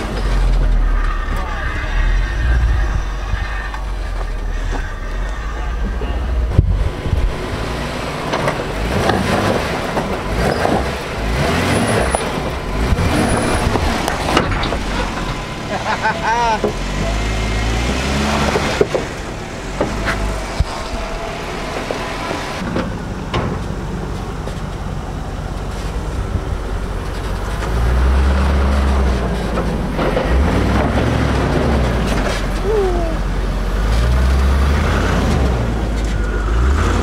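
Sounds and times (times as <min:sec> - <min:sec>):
suv engines crawling: 0:00.0 - 0:37.0
sharp knocks and creaks: 0:08.1 - 0:15.5, 0:16.6 - 0:24.9, 0:25.5 - 0:32.7.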